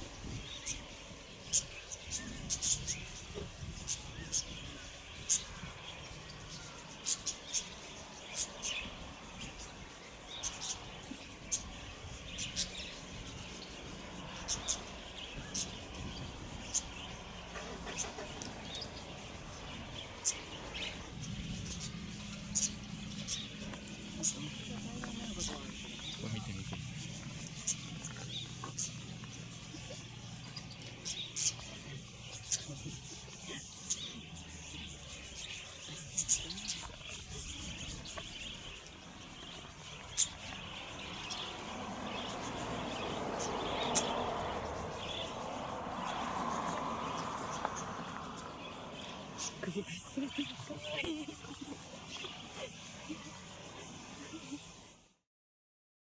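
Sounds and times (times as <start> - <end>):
budgerigars chirping: 0.0 - 54.7.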